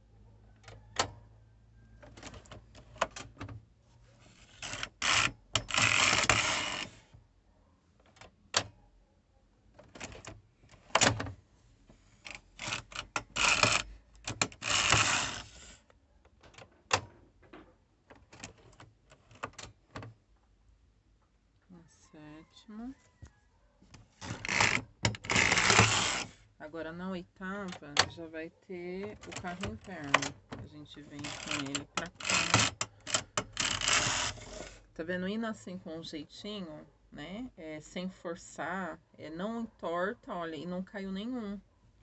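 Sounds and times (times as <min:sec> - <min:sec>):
knitting machine carriage rattling: 0:04.3 - 0:07.0, 0:12.2 - 0:15.6, 0:24.2 - 0:26.3, 0:29.0 - 0:34.9.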